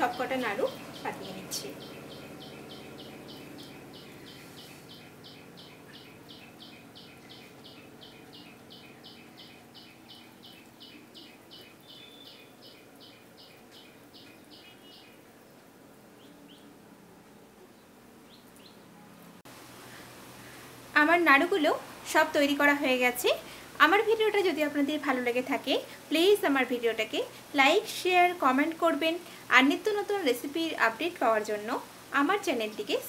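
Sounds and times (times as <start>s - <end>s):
small bird chirping: 0.0s - 15.2s.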